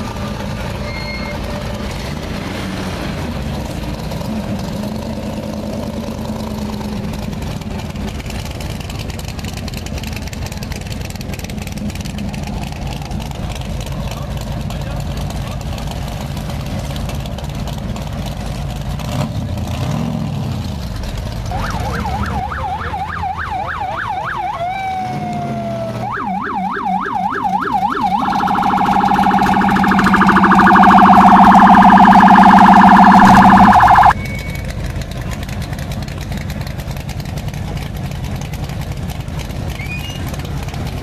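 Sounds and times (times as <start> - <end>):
car engine idling: 5.0 - 19.0, 26.0 - 41.0
electronic siren wailing: 21.5 - 34.2.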